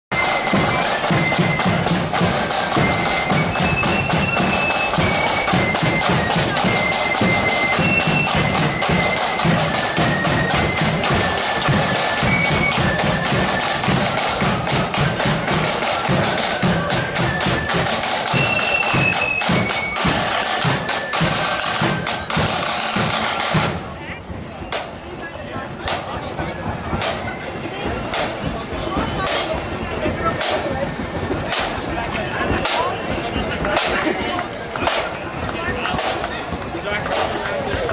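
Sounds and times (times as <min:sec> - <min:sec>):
high flute melody: 0:00.1 - 0:23.6
snare drum rolls: 0:00.1 - 0:24.0, 0:24.6 - 0:37.9.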